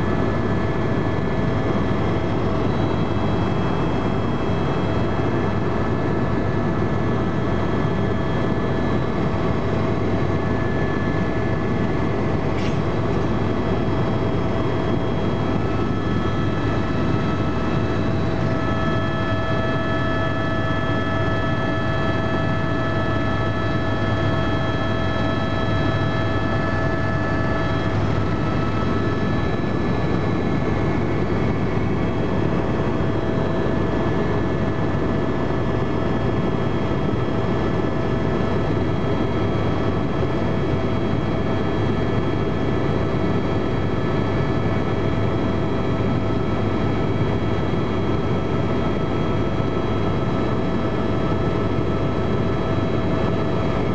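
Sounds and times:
helicopter rotor drone: 0:00.0 - 0:53.9
steady whining tones: 0:00.4 - 0:35.4.

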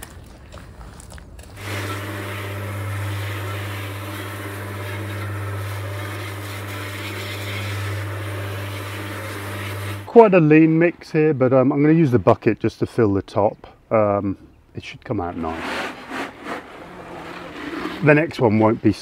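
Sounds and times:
cement mixer motor humming: 0:01.6 - 0:10.2, 0:15.4 - 0:18.1.

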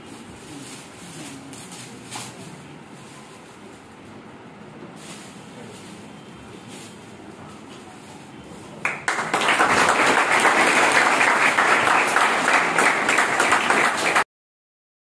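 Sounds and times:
people clapping: 0:08.8 - 0:14.3.

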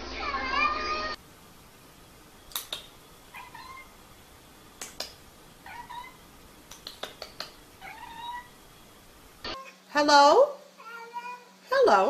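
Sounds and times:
sharp clicks: 0:02.5 - 0:03.0, 0:06.7 - 0:07.6
cat meowing: 0:03.3 - 0:03.9, 0:05.6 - 0:06.2, 0:07.8 - 0:08.6.

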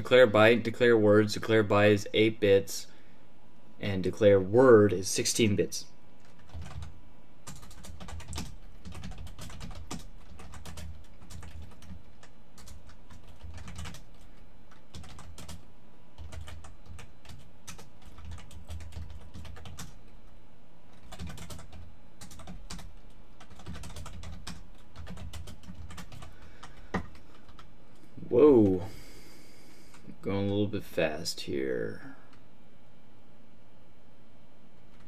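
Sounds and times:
computer keyboard typing: 0:06.2 - 0:20.0, 0:20.9 - 0:27.7.

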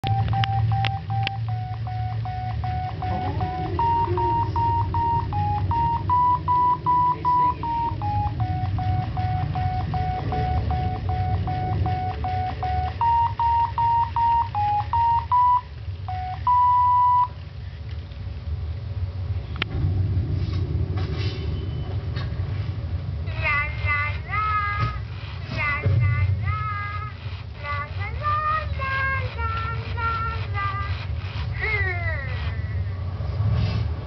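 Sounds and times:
electronic beep tune: 0:00.0 - 0:17.3
steady low hum: 0:00.0 - 0:34.0.

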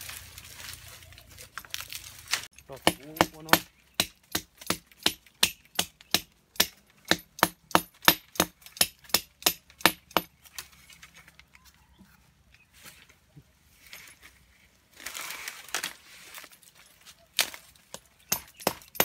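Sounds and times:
tool striking wood: 0:02.7 - 0:10.3, 0:18.3 - 0:19.0.

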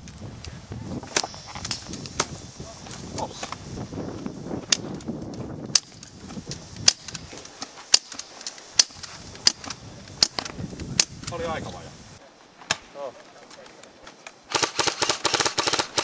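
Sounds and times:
airsoft pistol shots: 0:06.8 - 0:07.2, 0:14.5 - 0:16.0.

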